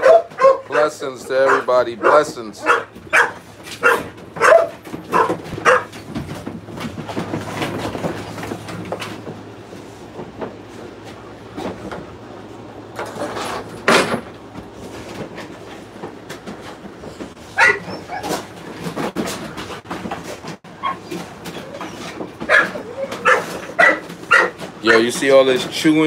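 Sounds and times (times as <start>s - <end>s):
dog barking: 0.0s - 6.0s, 17.5s - 18.3s, 22.4s - 25.0s.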